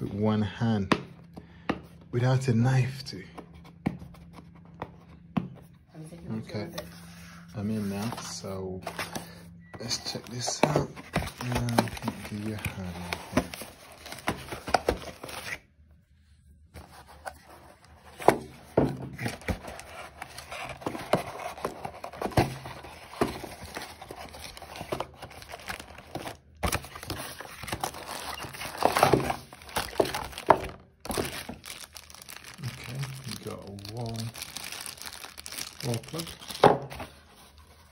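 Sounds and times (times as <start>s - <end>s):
paper and plastic crinkling and tearing: 6.5s - 15.7s, 16.8s - 37.9s.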